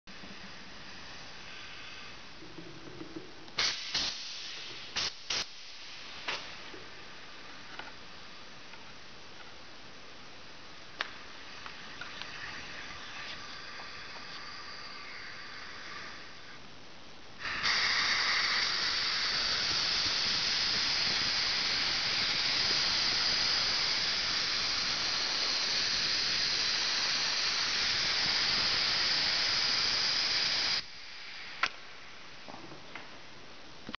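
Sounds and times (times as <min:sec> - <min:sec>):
loud air hiss: 0:00.2 - 0:02.4, 0:03.6 - 0:07.5, 0:10.9 - 0:16.6, 0:17.4 - 0:32.4.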